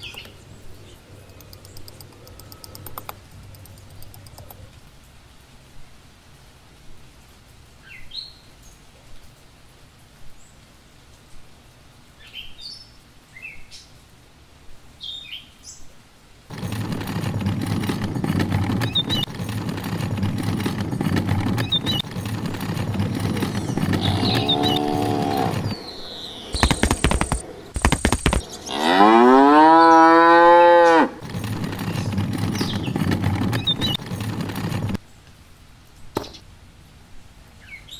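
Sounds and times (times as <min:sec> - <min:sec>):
steady noisy background: 0:00.0 - 0:06.8, 0:16.3 - 0:28.7, 0:31.2 - 0:35.1
sharp clatters: 0:16.5 - 0:28.6, 0:31.2 - 0:35.0
cow mooing: 0:23.8 - 0:25.7, 0:28.7 - 0:31.2.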